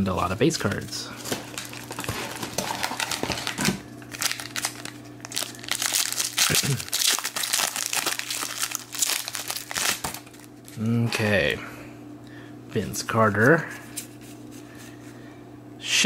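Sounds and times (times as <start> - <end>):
foil wrapper crinkling: 0.6 - 10.8
foil wrapper tearing: 1.2 - 10.8.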